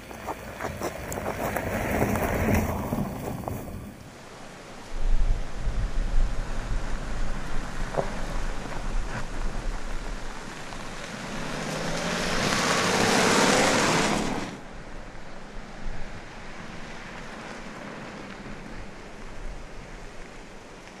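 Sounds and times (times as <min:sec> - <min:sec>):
tyres crunching over sand: 0:00.0 - 0:04.1.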